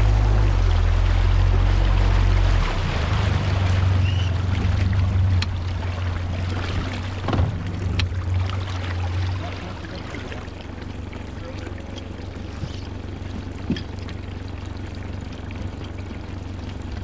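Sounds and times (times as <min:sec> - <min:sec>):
outboard motor running: 0:00.0 - 0:17.0
water noise: 0:00.0 - 0:17.0.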